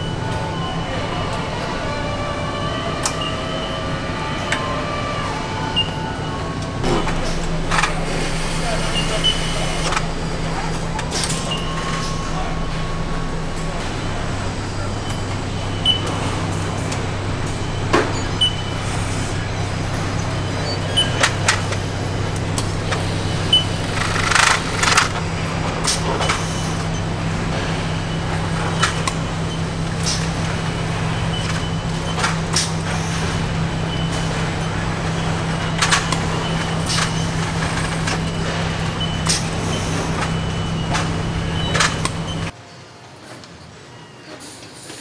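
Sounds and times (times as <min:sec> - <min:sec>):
low machinery hum: 0:00.0 - 0:42.6
clanks of tools and metal parts: 0:19.9 - 0:27.9, 0:33.9 - 0:42.5.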